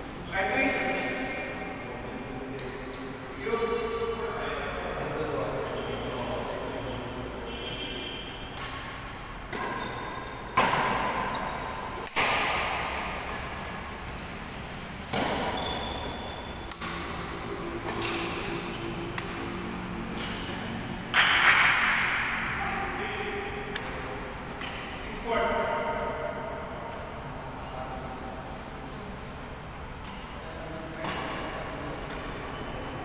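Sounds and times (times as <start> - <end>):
badminton racket hitting shuttlecock: 8.5 - 11.3, 11.9 - 14.1, 15.0 - 22.4
shoe squeaks: 9.7 - 10.6, 11.2 - 12.0, 12.7 - 14.2, 15.4 - 16.7, 25.4 - 26.4.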